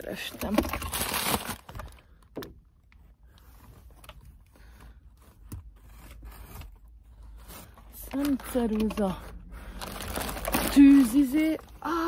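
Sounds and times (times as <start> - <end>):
paper bag rustling: 7.3 - 11.6.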